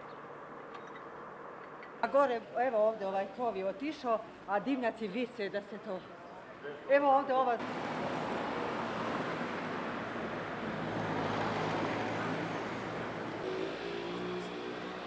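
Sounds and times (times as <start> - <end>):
vehicle passing in street: 7.6 - 15.0.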